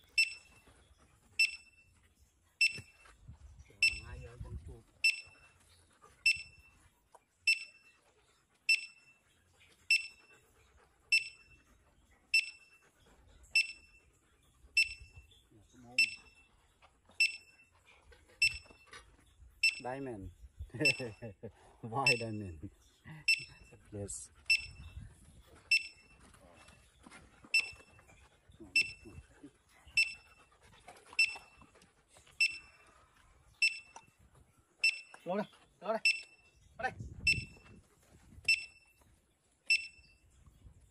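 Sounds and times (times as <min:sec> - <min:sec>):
metal detector beeping: 0:00.0 - 0:00.6, 0:01.4 - 0:01.9, 0:02.6 - 0:03.0, 0:03.8 - 0:04.2, 0:05.0 - 0:05.5, 0:06.2 - 0:06.7, 0:07.5 - 0:07.9, 0:08.7 - 0:09.2, 0:09.9 - 0:10.3, 0:11.1 - 0:11.6, 0:12.4 - 0:12.7, 0:13.6 - 0:14.0, 0:14.8 - 0:15.2, 0:16.0 - 0:16.5, 0:17.2 - 0:17.7, 0:18.4 - 0:18.8, 0:19.6 - 0:19.9, 0:20.8 - 0:21.2, 0:22.0 - 0:22.4, 0:23.3 - 0:23.7, 0:24.5 - 0:25.0, 0:25.7 - 0:26.2, 0:27.5 - 0:28.0, 0:28.8 - 0:29.1, 0:30.0 - 0:30.4, 0:31.2 - 0:31.6, 0:32.4 - 0:32.8, 0:33.6 - 0:34.1, 0:34.8 - 0:35.3, 0:36.0 - 0:36.5, 0:37.3 - 0:37.7, 0:38.4 - 0:39.0, 0:39.7 - 0:40.2
dog panting: 0:00.0 - 0:39.9.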